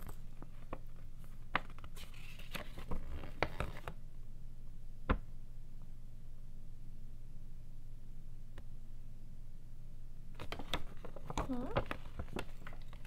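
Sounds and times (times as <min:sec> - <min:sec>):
cardboard and paper rustling: 0:00.0 - 0:03.9, 0:10.4 - 0:13.0
steady low hum: 0:00.0 - 0:13.0.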